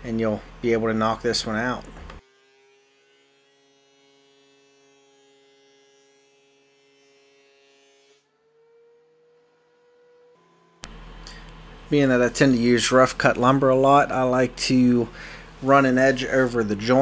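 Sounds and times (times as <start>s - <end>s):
faint steady hum: 10.8s - 17.0s.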